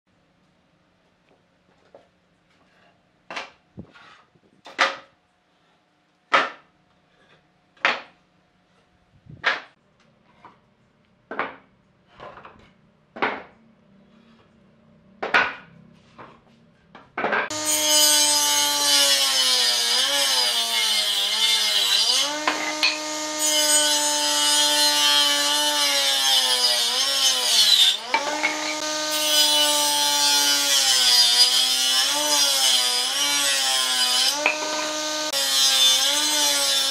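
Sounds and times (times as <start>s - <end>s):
power tool cutting wood: 17.5s - 36.9s.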